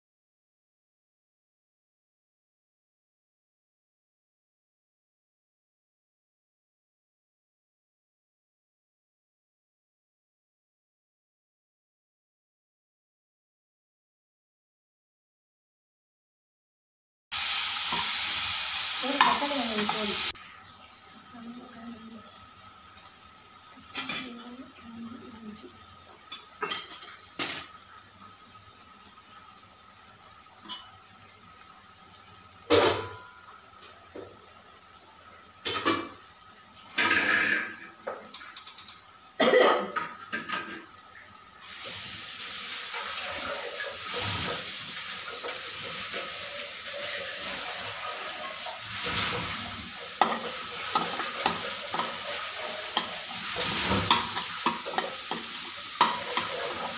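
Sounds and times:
masala sizzling: 0:17.3 - 0:56.9
utensils clinking against pan: 0:19.0 - 0:20.2, 0:23.6 - 0:24.6, 0:26.2 - 0:27.8, 0:30.6 - 0:31.1, 0:37.0 - 0:39.1, 0:47.0 - 0:56.9
spatula scraping pan: 0:42.6 - 0:56.9.

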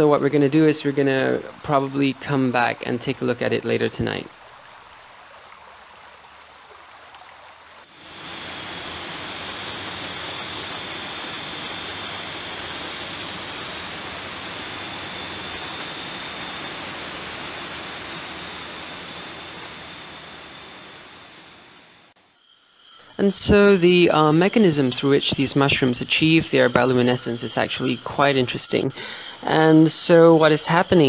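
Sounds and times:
high insect calls: 0:00.0 - 0:31.0
steady hiss: 0:22.2 - 0:31.0.

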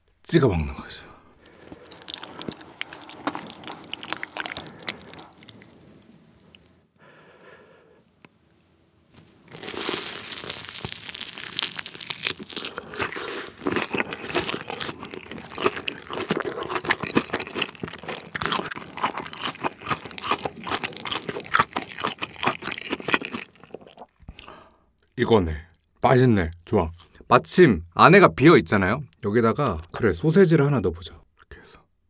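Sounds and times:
crunching and chewing food: 0:01.4 - 0:06.8, 0:09.2 - 0:27.2.

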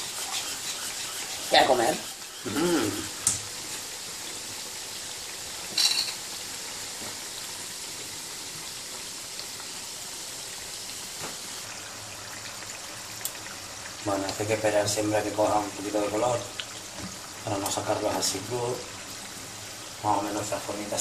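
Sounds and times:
dough frying in hot oil: 0:00.0 - 0:21.0.

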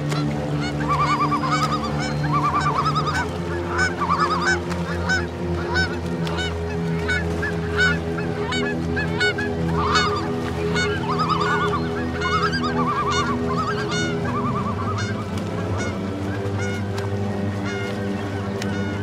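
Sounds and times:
flock of birds calling: 0:00.0 - 0:19.0.

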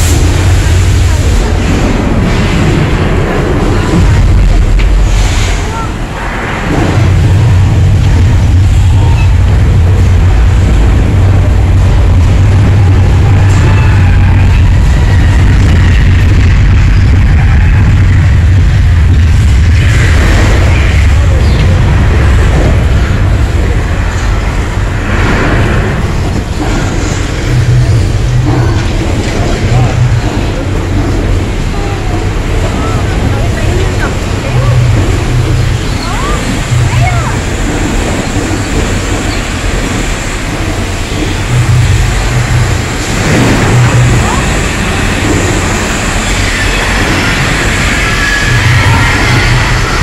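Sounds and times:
deep rumble: 0:00.0 - 0:50.0
dense wash of noise: 0:00.0 - 0:50.0.

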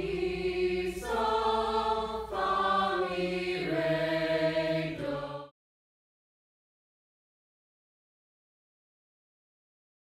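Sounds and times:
choir singing held chords: 0:00.0 - 0:05.6.

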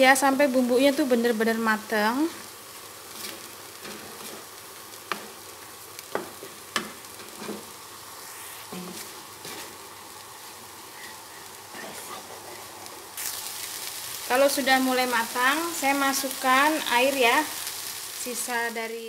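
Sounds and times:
spice paste sizzling in wok: 0:00.0 - 0:19.0
spatula scraping and tapping pan: 0:03.1 - 0:05.4, 0:06.0 - 0:07.7.

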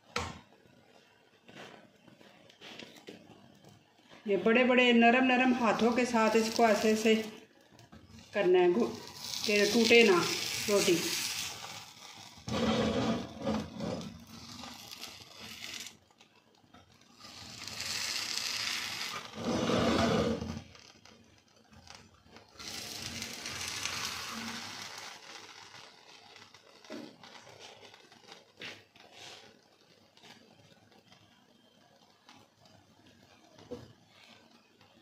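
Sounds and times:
metal spatula scraping iron griddle: 0:05.4 - 0:07.4, 0:08.8 - 0:15.9, 0:17.5 - 0:20.6.

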